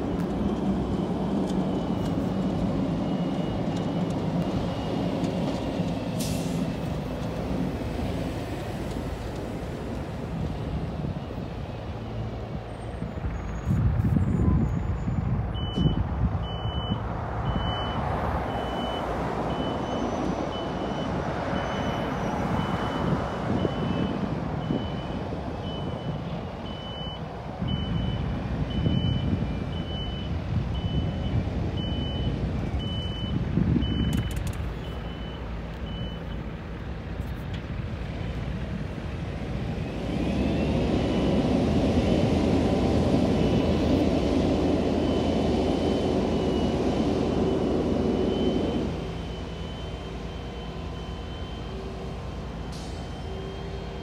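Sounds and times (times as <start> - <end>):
turbine whine: 37.2 - 54.0.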